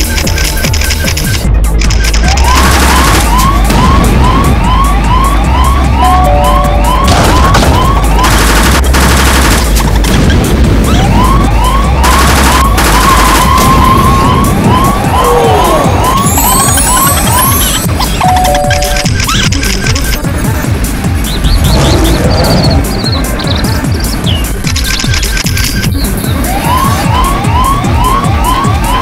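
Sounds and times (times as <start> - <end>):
electronic music with heavy bass: 0.0 - 29.0
siren-like rising yelp: 2.2 - 8.6, 10.9 - 19.1, 26.3 - 29.0.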